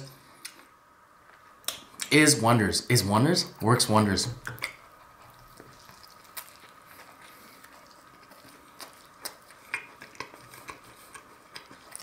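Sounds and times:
wet mouth clicks and smacks: 4.4s - 4.8s
person chewing: 4.4s - 12.0s.

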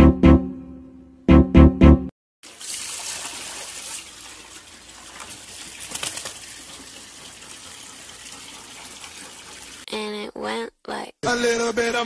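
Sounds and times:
tap water splashing into bucket: 2.4s - 9.8s
dog lapping water: 4.3s - 9.9s.

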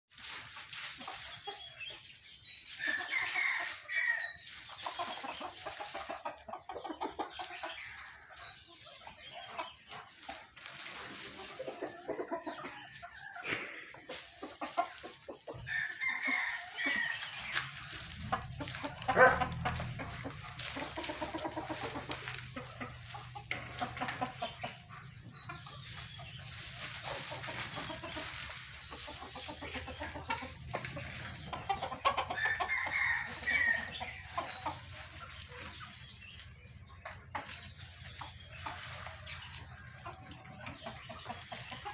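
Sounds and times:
chickens clucking: 0.1s - 41.9s
roosters crowing: 2.7s - 5.6s, 15.5s - 25.0s, 25.9s - 35.6s.

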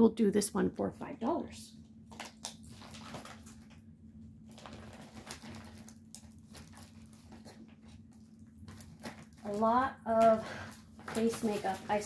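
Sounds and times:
steady low hum: 0.0s - 12.0s
packaging clicks and rustles: 2.1s - 3.8s, 4.5s - 9.8s.

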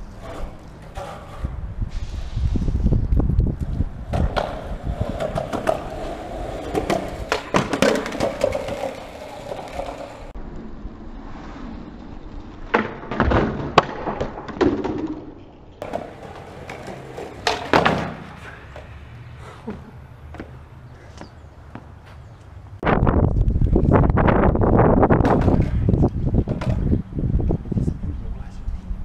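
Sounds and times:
skateboard wheels on rough concrete: 0.0s - 27.8s
skateboard deck clacking on ground: 4.0s - 10.3s, 12.7s - 18.9s, 25.2s - 26.9s.

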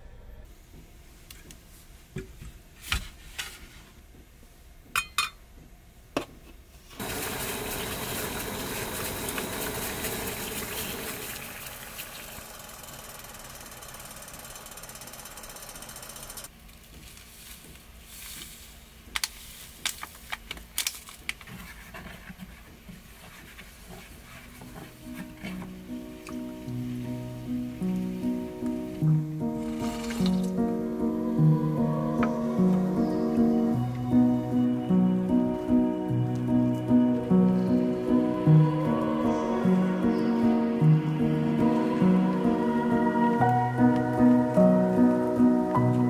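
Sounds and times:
gas burner hissing: 6.9s - 16.5s.

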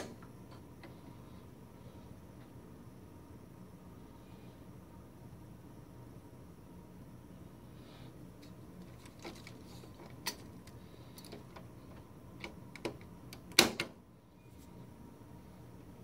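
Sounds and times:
cover snapping shut: 12.4s - 14.0s.

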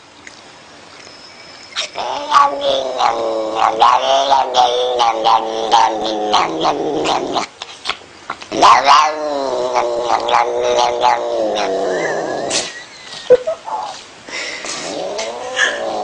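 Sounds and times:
cat yowling: 1.8s - 7.5s, 8.6s - 12.6s, 15.0s - 16.0s.

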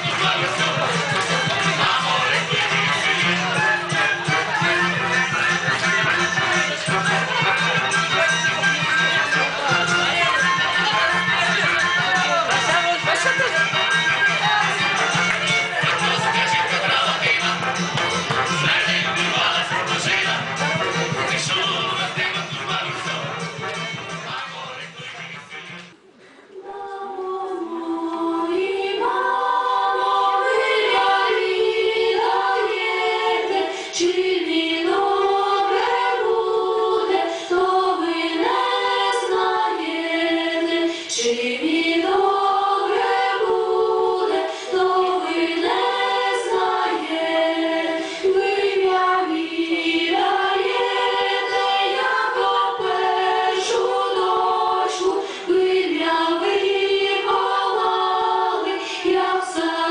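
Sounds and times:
women's choir singing a cappella: 0.0s - 8.3s, 26.6s - 59.9s.

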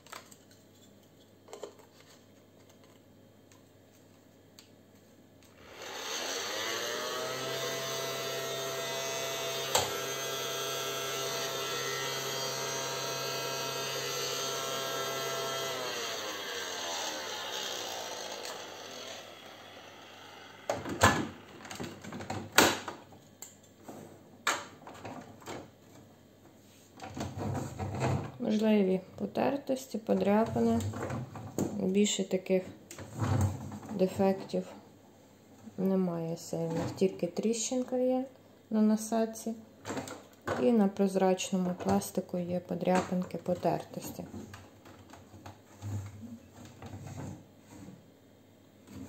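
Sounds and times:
toy vacuum cleaner running: 5.6s - 21.6s.

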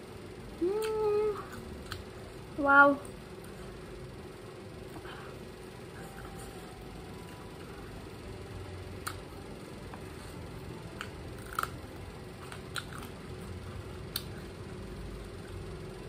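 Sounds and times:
low hum: 0.0s - 16.0s
chilli being bitten and chewed: 0.8s - 2.1s, 9.0s - 9.3s, 10.9s - 14.5s.

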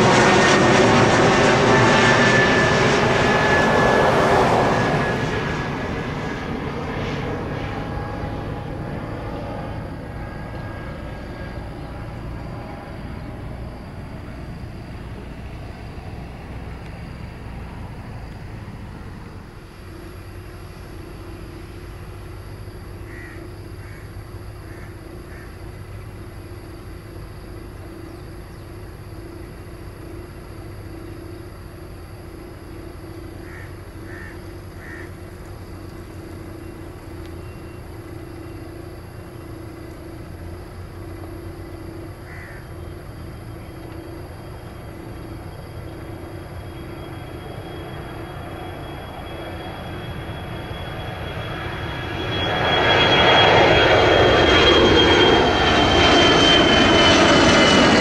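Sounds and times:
jet engine rumble: 0.0s - 58.0s
low hum: 0.0s - 58.0s
bird calling: 23.0s - 26.1s, 33.4s - 35.4s, 42.2s - 43.0s.

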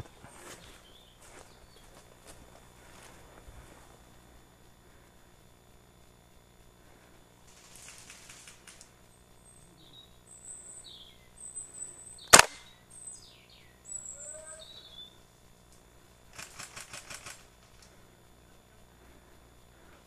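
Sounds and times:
birds chirping: 0.0s - 2.2s, 8.9s - 15.4s
airsoft rifle shot: 12.3s - 12.7s
quick rattle of pulses: 16.3s - 17.9s.

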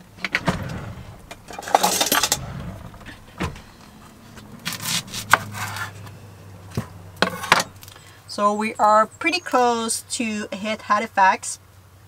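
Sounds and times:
utensil drawer rummaging: 0.2s - 6.1s.

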